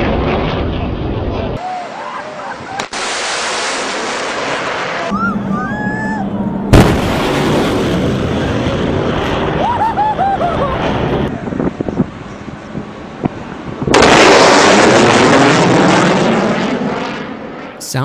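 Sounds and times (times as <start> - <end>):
sonic boom: 3.6 - 9.7
fighter jet rushing low pass: 10.6 - 17.8.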